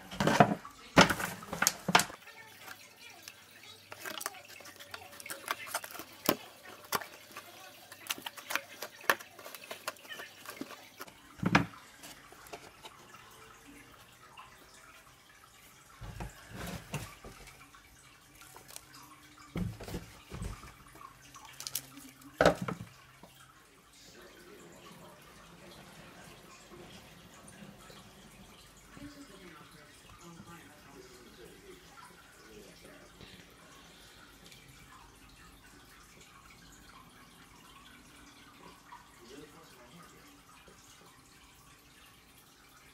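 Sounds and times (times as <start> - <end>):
plastic container knocking: 0.1 - 2.2, 11.4 - 11.8, 19.6 - 20.8, 22.4 - 22.9.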